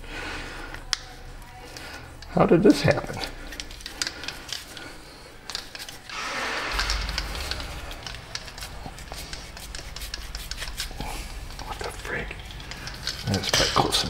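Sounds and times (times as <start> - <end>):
air tool clicks and rattles: 5.4 - 14.0.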